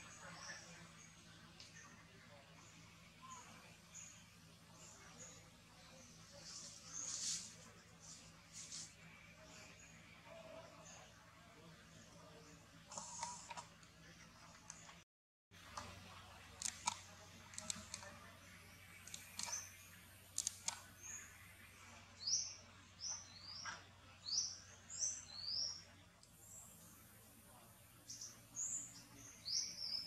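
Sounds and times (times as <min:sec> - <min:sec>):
sharp clicks and crackles: 0:15.7 - 0:18.2, 0:19.0 - 0:19.7, 0:20.3 - 0:20.9
bird chirping: 0:17.6 - 0:30.0.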